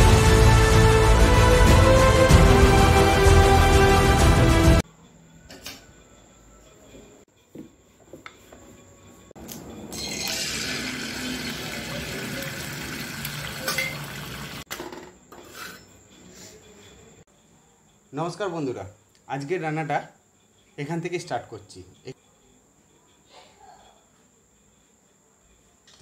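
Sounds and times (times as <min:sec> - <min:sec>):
intro music: 0:00.0 - 0:04.8.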